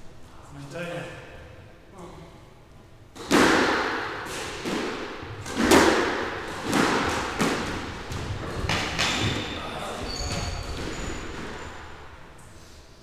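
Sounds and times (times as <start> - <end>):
squash ball hits echoing: 3.1 - 12.2.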